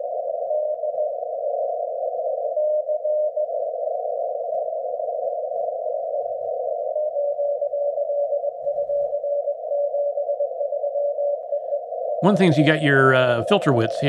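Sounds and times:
radio hiss: 0:12.2 - 0:14.0
weak morse code tone: 0:12.2 - 0:14.0.

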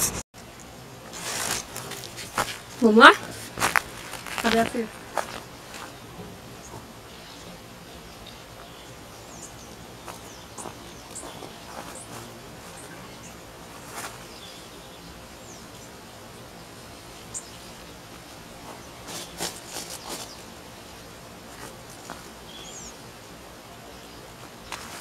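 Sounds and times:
plant leaves rustling and crackling: 0:00.0 - 0:07.6, 0:10.0 - 0:15.0, 0:16.8 - 0:23.0, 0:24.2 - 0:25.0.

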